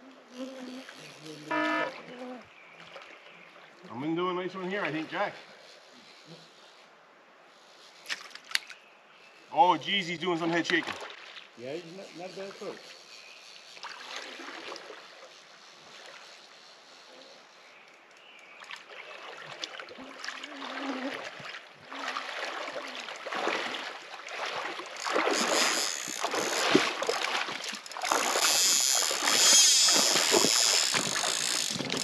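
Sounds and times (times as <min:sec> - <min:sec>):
stream hiss: 0:00.0 - 0:32.0
water splashing around wading legs: 0:10.6 - 0:11.6, 0:13.8 - 0:16.2, 0:18.4 - 0:32.0.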